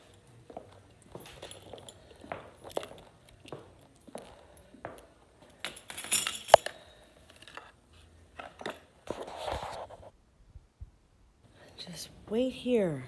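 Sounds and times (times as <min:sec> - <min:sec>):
objects clinking on stone counter: 0:00.5 - 0:07.7.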